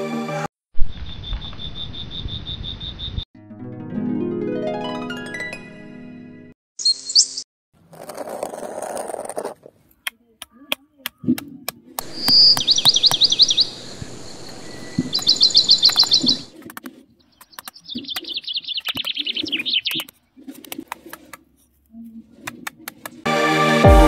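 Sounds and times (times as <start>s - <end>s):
bird singing trilled phrases: 6.8s - 7.4s, 12.1s - 16.5s, 17.2s - 20.1s.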